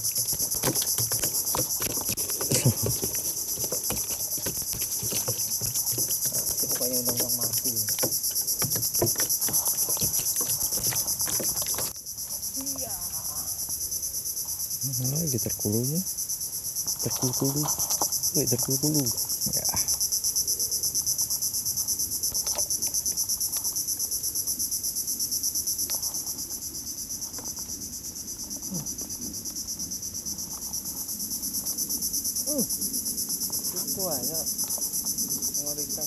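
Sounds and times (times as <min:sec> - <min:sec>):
knocks and clicks: 0:00.0 - 0:12.0.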